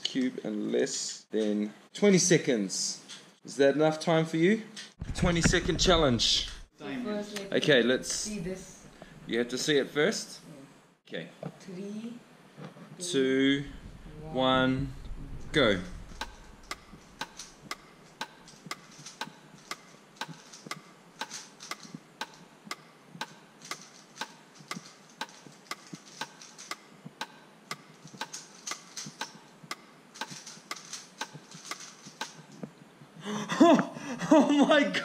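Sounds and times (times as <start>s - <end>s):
soft rattle of cube layers: 13.6s - 32.8s
plastic cube clicks: 16.0s - 22.4s, 23.2s - 26.8s, 30.2s - 32.5s.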